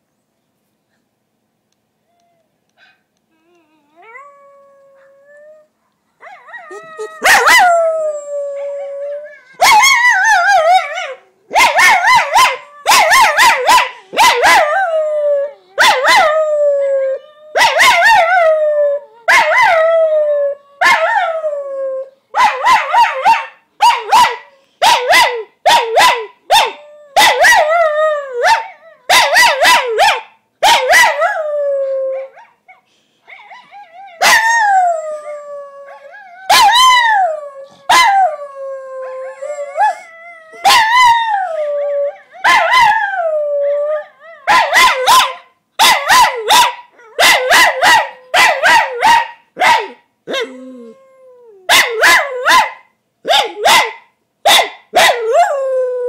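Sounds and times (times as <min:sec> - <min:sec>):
dog howling: 0:03.4 - 0:23.3, 0:33.4 - 0:49.2
dog barking: 0:11.5 - 0:14.7, 0:22.4 - 0:27.6, 0:28.5 - 0:31.2, 0:44.5 - 0:50.4, 0:51.7 - 0:55.3.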